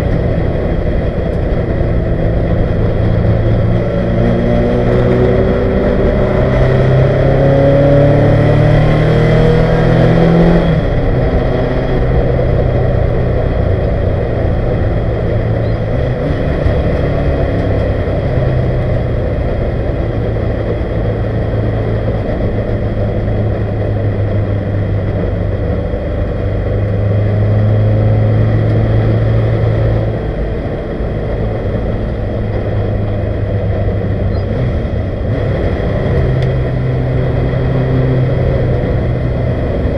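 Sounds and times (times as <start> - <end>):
race car engine revving: 0.0 - 39.9.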